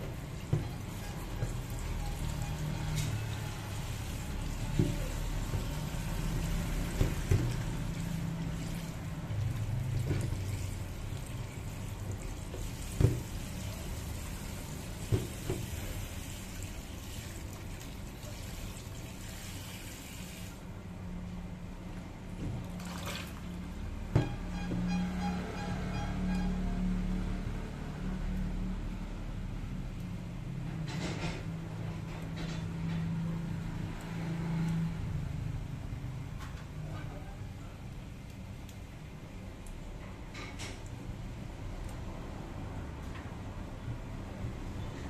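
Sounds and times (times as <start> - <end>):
tap water running into bowl: 0.0 - 20.6, 22.4 - 23.5.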